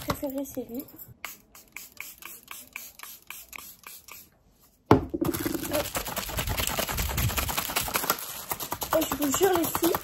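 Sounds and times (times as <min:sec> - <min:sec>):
spray bottle squirts: 0:01.2 - 0:04.3
rapid clicks and rustling: 0:05.3 - 0:10.0.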